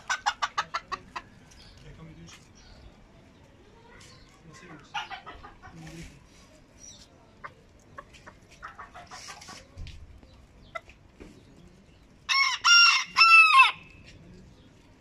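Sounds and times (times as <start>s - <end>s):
rooster crowing: 12.3s - 13.9s.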